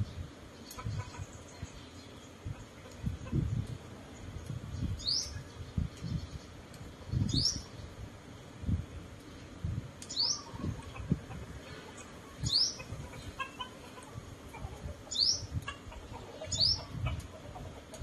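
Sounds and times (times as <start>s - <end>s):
small bird rising calls: 10.1s - 17.3s.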